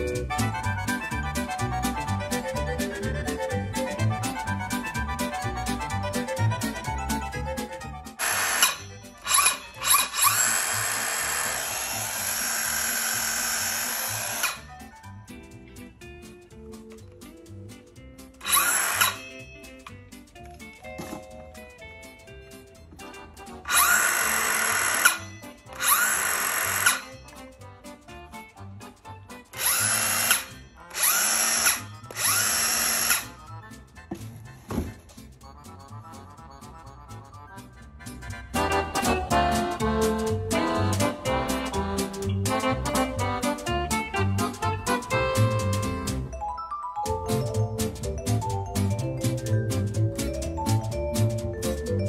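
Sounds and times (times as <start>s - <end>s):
circular saw motor whining: 8.2s - 14.6s, 18.4s - 19.3s, 23.7s - 27.1s, 29.6s - 33.4s.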